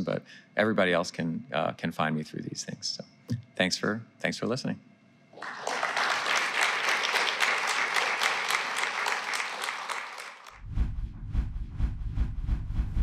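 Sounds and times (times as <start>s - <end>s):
audience applause: 5.4s - 10.6s.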